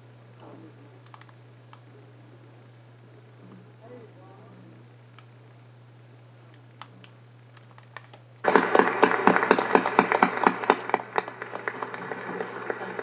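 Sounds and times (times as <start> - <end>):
crowd applauding: 8.4 - 13.0.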